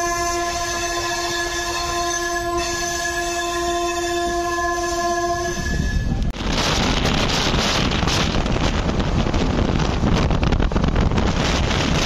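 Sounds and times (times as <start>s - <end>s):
train horn: 0.0s - 6.3s
moving train rumble: 0.0s - 12.0s.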